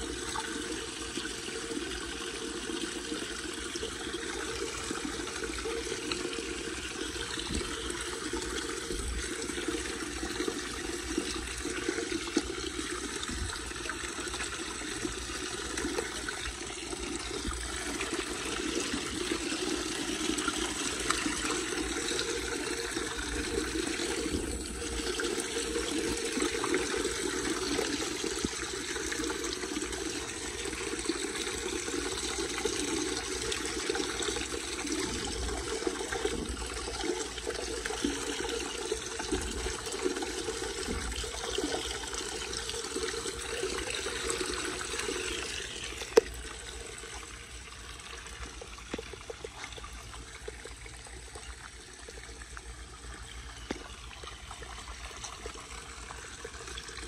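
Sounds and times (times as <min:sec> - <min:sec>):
water trickling through drain grate: 0:00.0 - 0:57.0.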